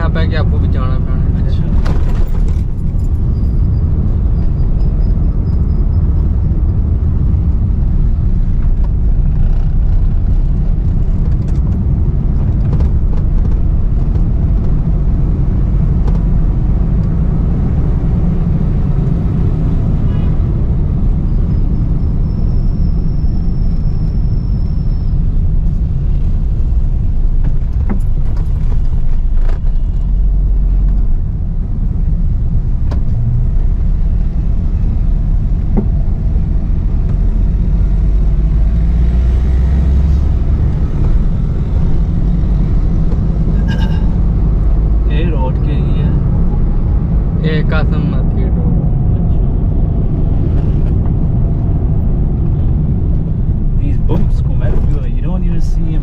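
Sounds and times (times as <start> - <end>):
engine and road rumble in car: 0.0 - 56.0.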